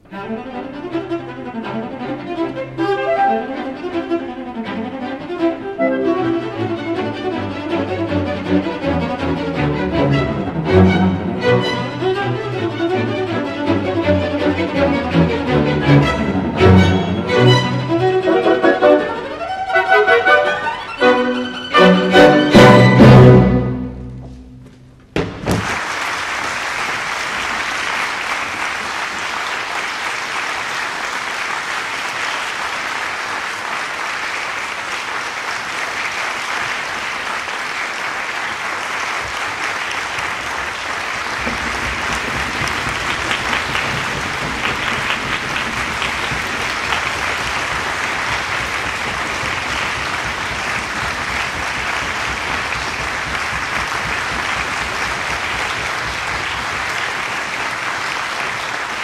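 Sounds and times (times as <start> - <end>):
audience applauding: 25.3 - 59.0.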